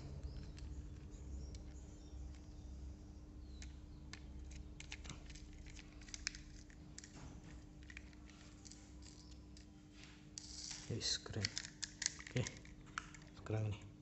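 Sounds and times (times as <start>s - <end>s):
faint steady hum: 0.0s - 14.0s
plastic toy parts clicking: 3.6s - 7.2s, 7.8s - 9.7s, 11.3s - 13.4s.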